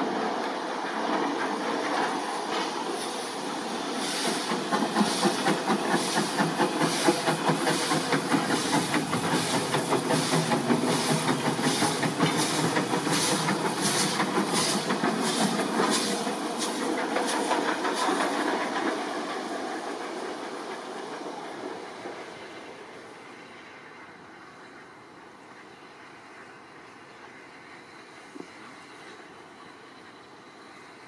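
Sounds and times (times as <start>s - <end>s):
steady steam hiss: 0.0s - 31.0s
steam locomotive exhaust chuffs: 1.0s - 24.8s.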